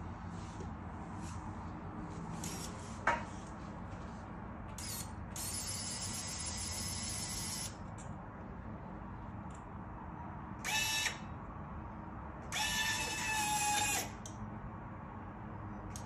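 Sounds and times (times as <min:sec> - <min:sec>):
small motor whirring: 0:02.4 - 0:02.8, 0:04.8 - 0:07.8, 0:10.6 - 0:11.3, 0:12.5 - 0:14.2.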